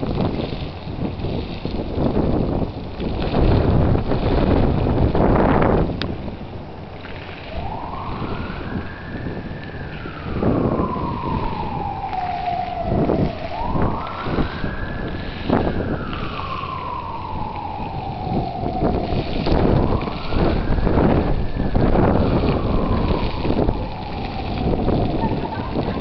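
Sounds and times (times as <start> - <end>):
wind rumbling on microphone: 0.0 - 26.0
wailing siren: 7.0 - 26.0.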